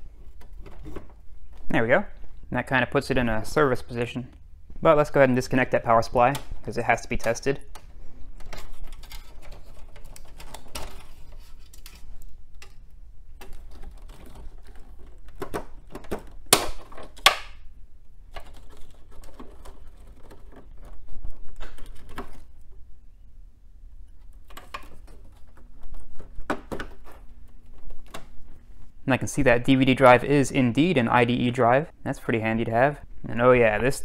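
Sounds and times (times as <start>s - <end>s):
cable connectors clicking and rattling: 5.4s - 22.8s, 24.0s - 28.7s.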